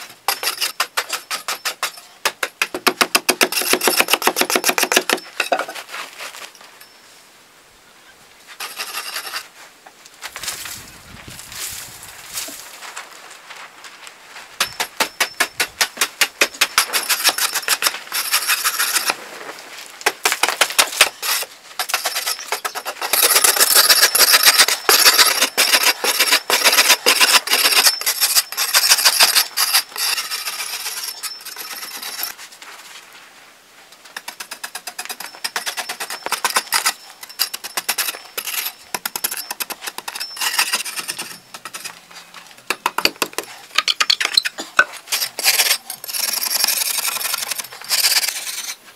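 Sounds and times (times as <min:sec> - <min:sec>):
metal blade chopping earth: 0:14.6 - 0:19.2, 0:20.1 - 0:32.2.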